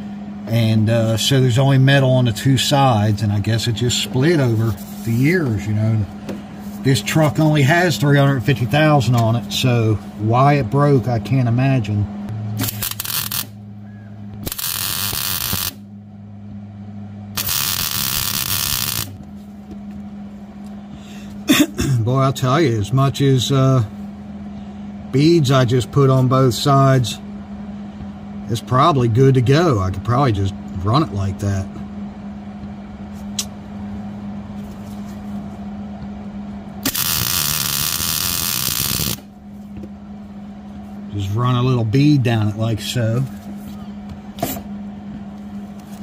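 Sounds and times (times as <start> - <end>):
low hum: 0.0 - 46.0
welding arc sizzling: 12.6 - 13.6, 14.4 - 15.8, 17.4 - 19.2, 36.8 - 39.3.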